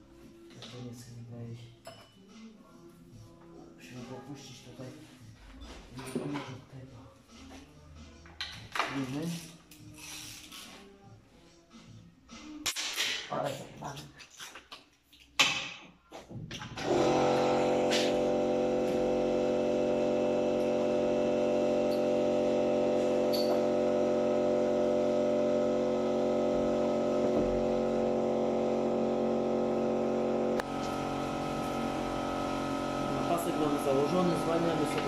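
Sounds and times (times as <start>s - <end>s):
steady machine hum: 16.8s - 35.0s.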